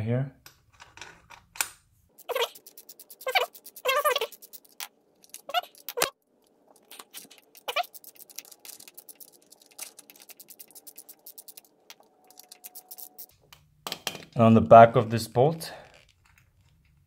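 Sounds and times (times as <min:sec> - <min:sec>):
short squeaks: 0:02.2 - 0:06.2, 0:06.8 - 0:13.3.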